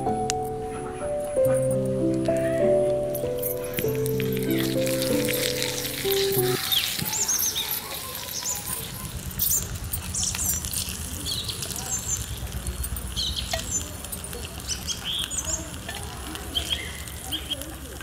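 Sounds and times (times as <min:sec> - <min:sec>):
small fire crackling: 0:00.0 - 0:18.0
eggs sizzling in oil: 0:03.8 - 0:18.0.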